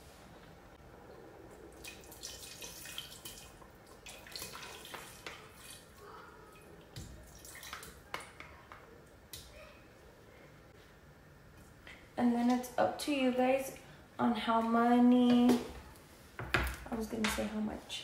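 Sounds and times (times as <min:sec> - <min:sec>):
liquid splashing and dripping: 0:01.5 - 0:08.5.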